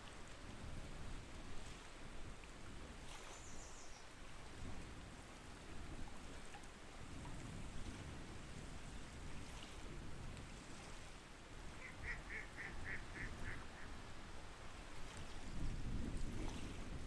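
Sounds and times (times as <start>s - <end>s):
waterfowl calling short notes: 11.8s - 14.0s.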